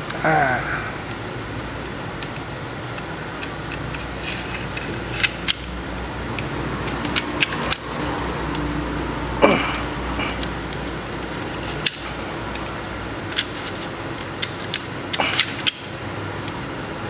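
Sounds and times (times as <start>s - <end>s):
steady background hum: 0.0s - 17.0s
pistol parts clicking: 3.0s - 5.7s, 10.4s - 12.7s, 13.3s - 16.6s.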